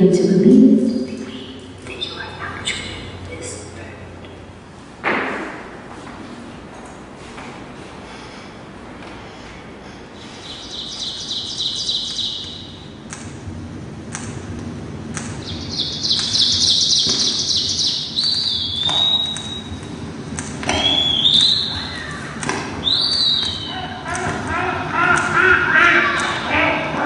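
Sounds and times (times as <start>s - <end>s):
high bird trills: 10.2s - 12.9s, 15.4s - 19.8s, 20.7s - 26.7s
sharp clicks: 12.1s - 13.4s, 14.1s - 14.4s, 15.1s - 15.4s, 18.2s - 20.8s
whistled calls sliding down: 20.7s - 22.2s.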